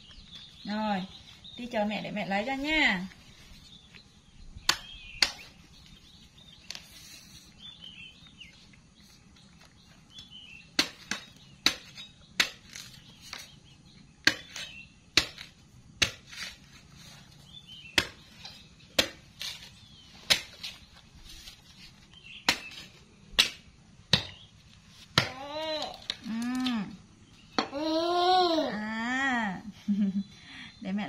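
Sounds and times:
cleaver chopping coconut: 4.6 - 5.6, 10.7 - 13.4, 14.2 - 16.7, 17.9 - 19.6, 20.2 - 20.6, 22.4 - 24.4, 25.1 - 25.5.

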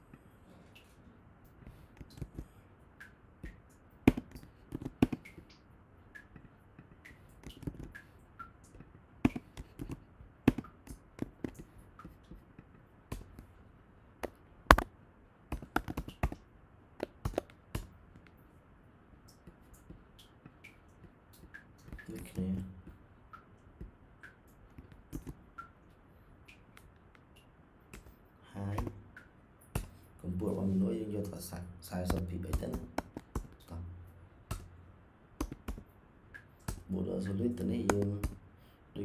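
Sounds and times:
keyboard keystrokes: 9.2 - 12.4, 15.5 - 16.4, 35.4 - 35.8
mouse clicks: 14.2 - 14.9.

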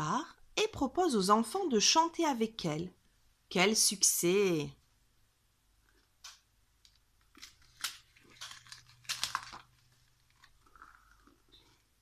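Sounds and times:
book page rustling: 6.9 - 11.1.

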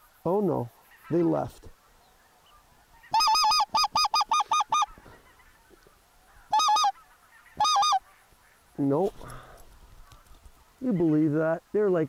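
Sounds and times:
goose call honks and clucks: 2.8 - 8.8.

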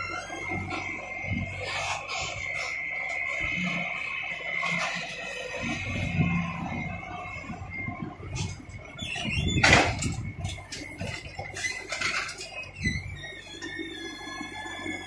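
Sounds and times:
steady high whine: 0.0 - 15.0.

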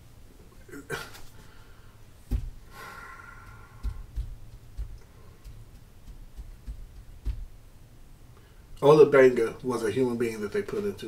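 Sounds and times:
soft dull thumps and knocks: 2.2 - 2.7, 3.3 - 7.7.

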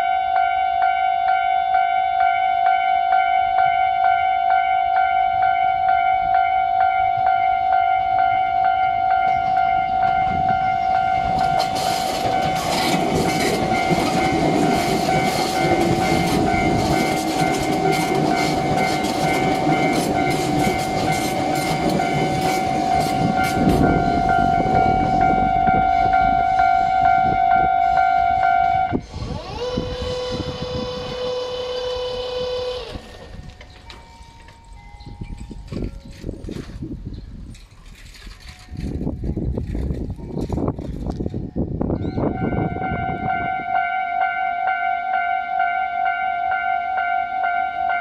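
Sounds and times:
level crossing warning alarm: 0.0 - 35.9, 41.9 - 48.0
train passing: 0.0 - 48.0
wheels clattering over rail joints: 9.2 - 26.7, 32.6 - 41.5.

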